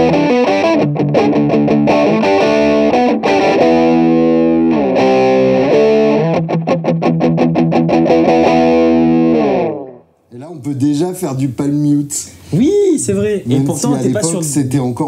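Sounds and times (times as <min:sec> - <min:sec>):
overdriven electric guitar riff: 0:00.0 - 0:10.2.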